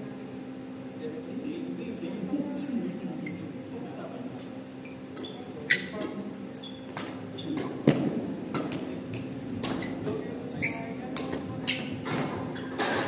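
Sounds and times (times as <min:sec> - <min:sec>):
rackets hitting shuttlecock: 0:06.9 - 0:10.2, 0:11.1 - 0:11.4.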